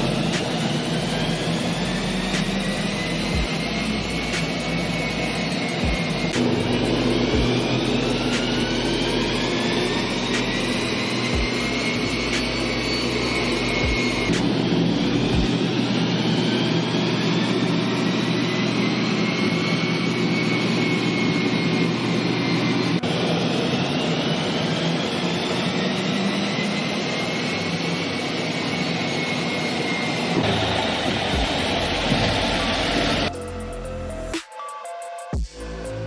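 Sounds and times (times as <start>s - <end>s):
car engine on dynamometer: 0.0s - 34.4s
cooling blowers rushing: 0.0s - 34.4s.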